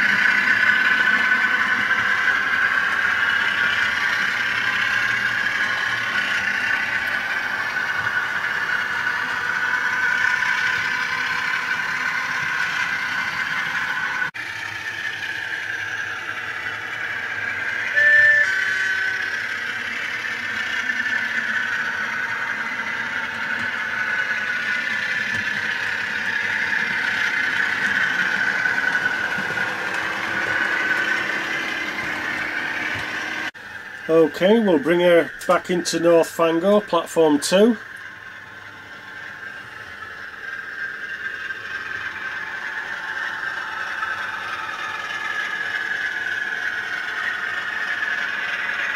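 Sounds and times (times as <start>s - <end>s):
model train motor whirring: 0.0s - 48.9s
two-note horn: 17.9s - 19.2s.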